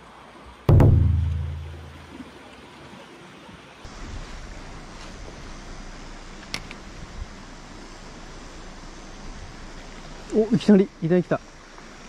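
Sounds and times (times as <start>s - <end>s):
water rushing: 0.0s - 12.0s
deep booming hit: 0.7s - 2.0s.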